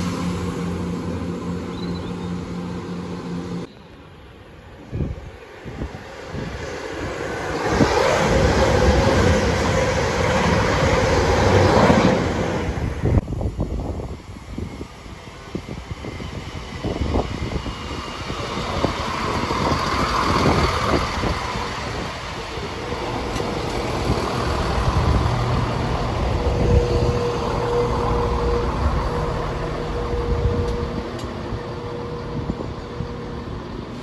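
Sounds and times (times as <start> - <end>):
diesel train engines droning: 0.0 - 34.0
steady whine: 6.3 - 34.0
wheels clicking over rail joints: 16.9 - 27.9.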